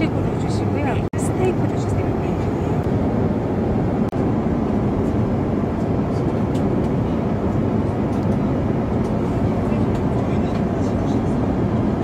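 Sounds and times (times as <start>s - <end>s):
airplane cabin noise: 0.0s - 12.0s.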